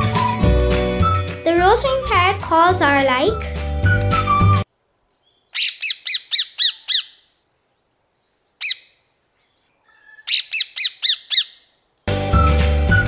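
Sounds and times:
parakeet squawking calls: 0:05.3 - 0:07.3, 0:08.6 - 0:11.7.

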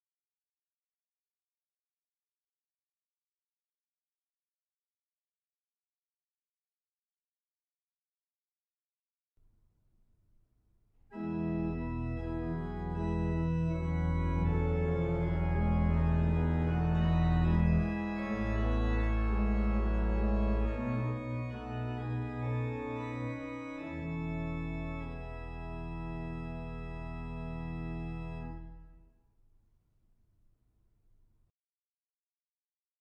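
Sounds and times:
pipe organ chords: 0:11.1 - 0:29.0.

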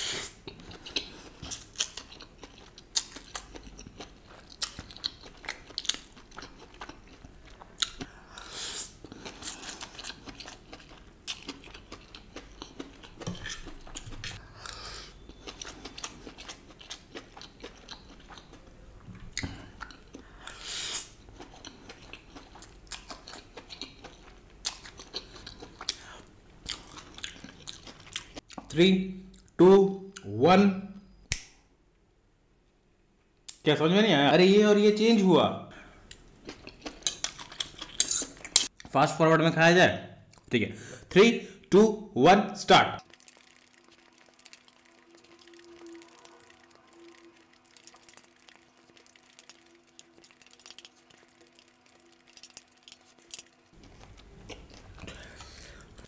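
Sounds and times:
chewing noodles: 0:00.4 - 0:18.7, 0:19.3 - 0:28.6, 0:43.0 - 0:56.0.

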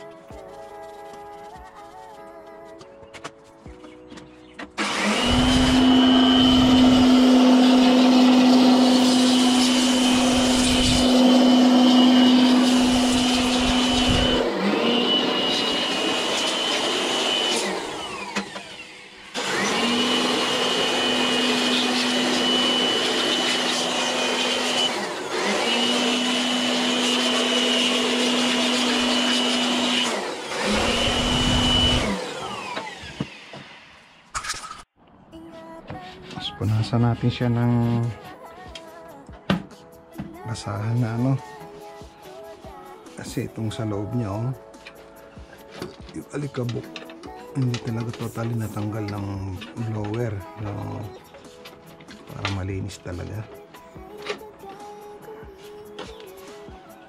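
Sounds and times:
electric blower motor whine: 0:04.7 - 0:34.3.

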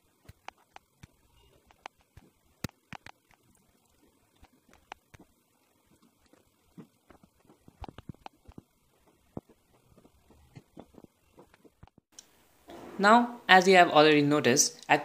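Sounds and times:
faint clicks and taps: 0:00.2 - 0:12.3.

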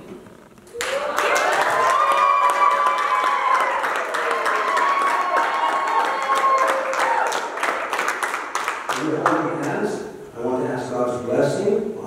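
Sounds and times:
high-pitched cheering voices: 0:00.7 - 0:07.6
crowd clapping: 0:00.7 - 0:09.8.

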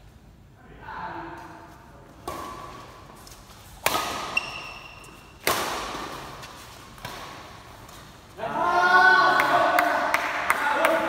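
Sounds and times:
rackets hitting shuttlecock: 0:02.2 - 0:03.0, 0:03.7 - 0:08.0.

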